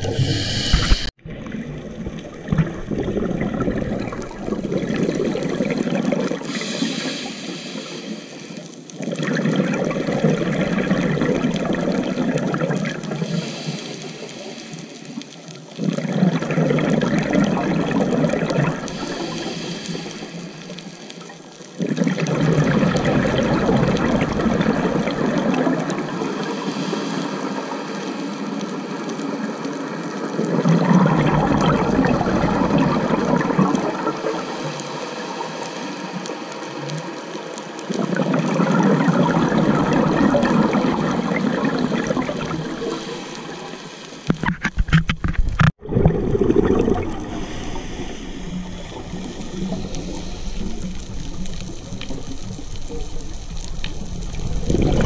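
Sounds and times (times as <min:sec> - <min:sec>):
diver inhaling: 0:00.0 - 0:01.1, 0:06.4 - 0:08.8, 0:13.2 - 0:15.3, 0:18.8 - 0:21.2, 0:26.3 - 0:29.7, 0:34.3 - 0:36.7, 0:42.0 - 0:44.3, 0:46.6 - 0:52.8
exhaled bubbles gurgling underwater: 0:00.0 - 0:55.0.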